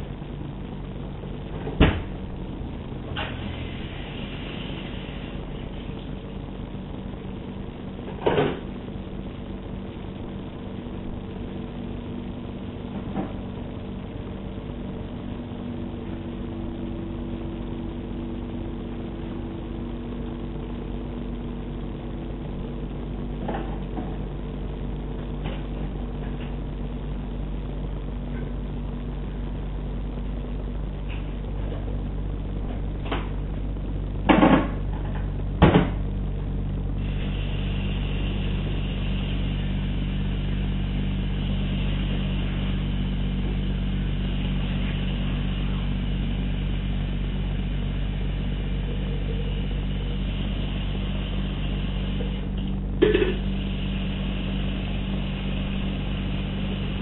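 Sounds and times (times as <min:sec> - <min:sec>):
engine humming: 0:00.0 - 0:57.0.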